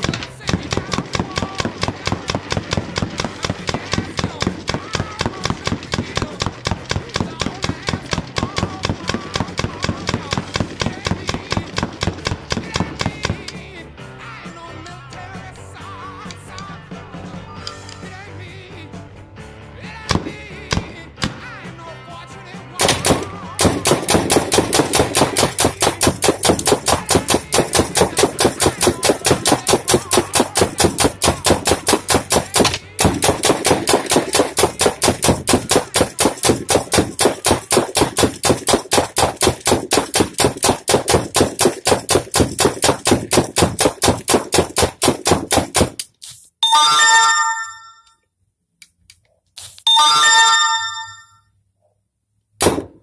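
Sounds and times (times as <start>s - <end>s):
paintball gun rapid firing: 0.0s - 13.6s, 22.8s - 46.1s, 52.6s - 53.0s
music: 0.0s - 39.2s.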